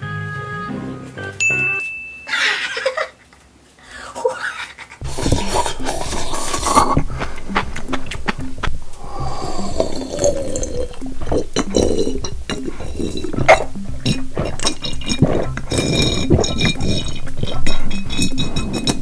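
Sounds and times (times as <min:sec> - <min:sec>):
background music: 0:00.0 - 0:01.8, 0:05.0 - 0:19.0
juicy chewing: 0:05.0 - 0:19.0
mouth clicks: 0:05.0 - 0:19.0
slurping: 0:05.0 - 0:19.0.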